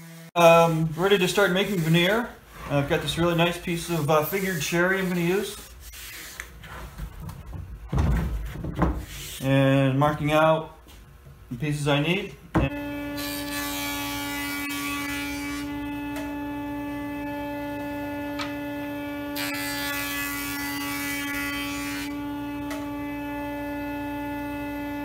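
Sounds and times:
jointer motor hum: 12.6 - 25.0
hissing wood cut: 12.7 - 24.8.

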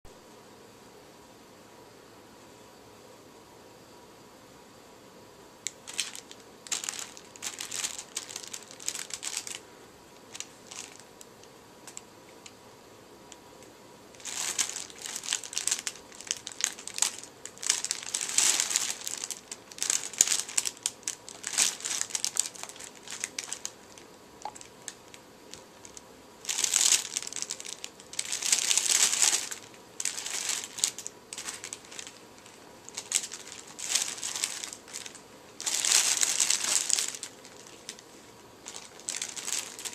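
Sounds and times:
fabric tunnel lining rustling: 5.8 - 9.6, 14.2 - 39.9.

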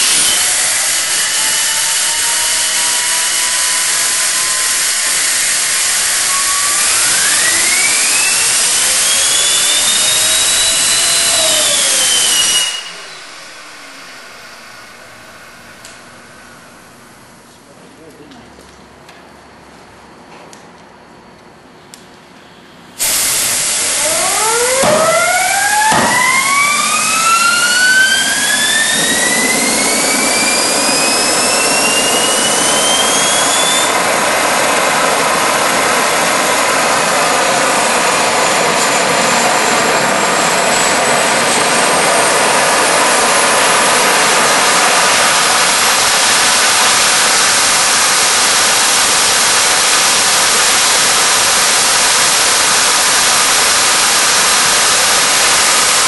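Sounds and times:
rush of air: 0.0 - 17.3, 23.0 - 39.4
loud steady jet noise: 0.0 - 17.4, 23.0 - 56.0
turbine whine rising in pitch: 0.0 - 17.5, 23.0 - 56.0.

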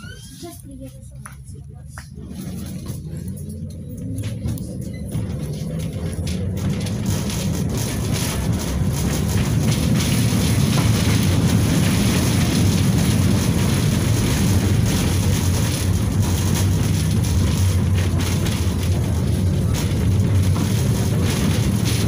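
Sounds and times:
tram wheels rumbling on rails: 0.0 - 22.0.

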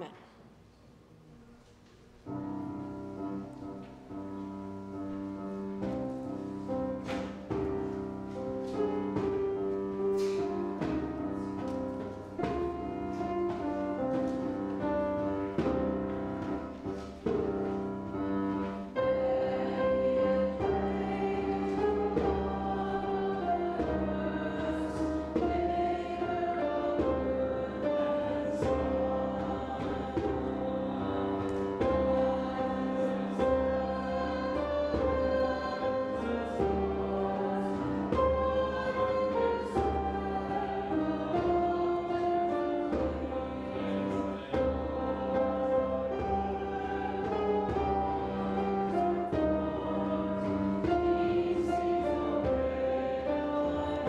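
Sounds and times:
hand frame drum: 5.7 - 54.0.

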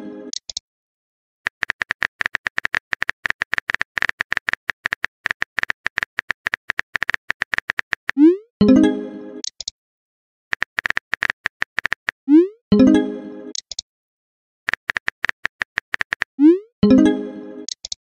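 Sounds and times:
keyboard typing clicks: 0.3 - 0.6, 1.5 - 8.3, 9.4 - 9.7, 10.5 - 12.1, 13.5 - 13.8, 14.7 - 16.3, 17.7 - 18.0.

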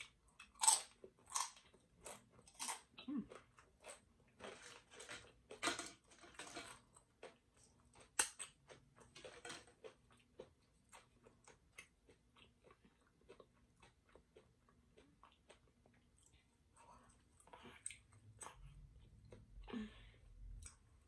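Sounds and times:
tortilla chips crunching: 0.0 - 15.9.

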